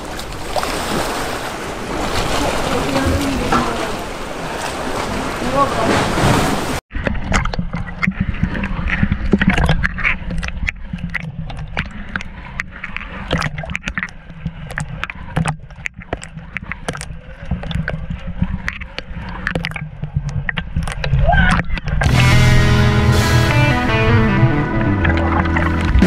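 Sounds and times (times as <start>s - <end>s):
water slapping against camera housing: 6.9s - 22.2s
low rumble: 22.0s - 26.0s.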